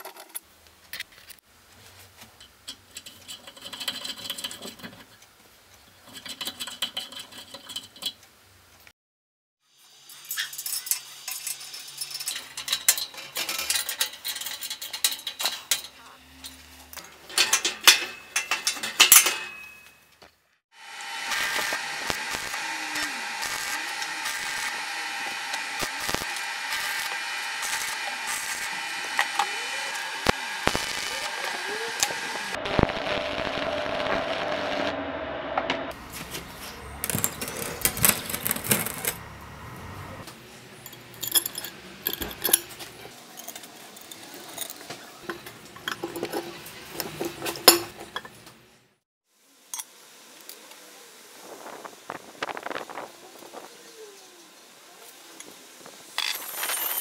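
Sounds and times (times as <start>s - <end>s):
arc welding crackling and hissing: 20.7s - 35.1s, 35.9s - 39.2s.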